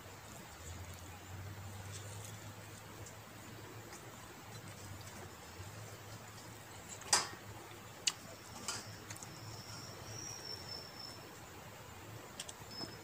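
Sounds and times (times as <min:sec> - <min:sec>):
eating sounds: 0:00.0 - 0:10.0
low steady hum: 0:00.0 - 0:13.0.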